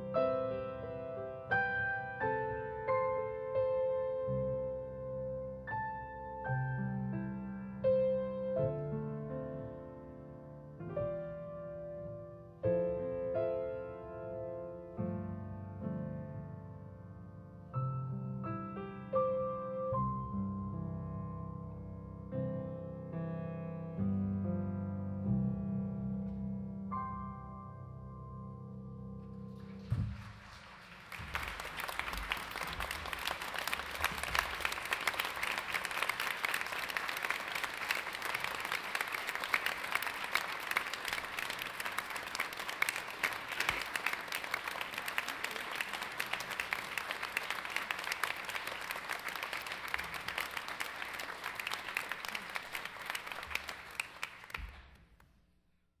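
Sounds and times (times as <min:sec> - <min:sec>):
piano chord: 0:00.0 - 0:29.8
congregation applauding: 0:29.6 - 0:55.0.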